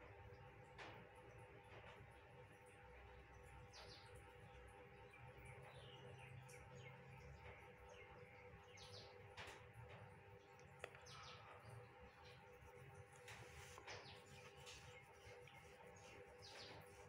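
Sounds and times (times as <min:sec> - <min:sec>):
faint steady hum: 0:00.0 - 0:17.0
distant bird chirps: 0:05.0 - 0:17.0.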